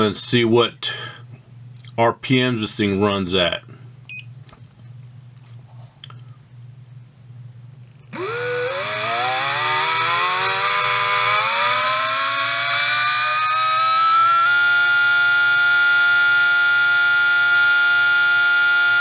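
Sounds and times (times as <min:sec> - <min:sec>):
electric motor whine rising: 0:08.1 - 0:19.0.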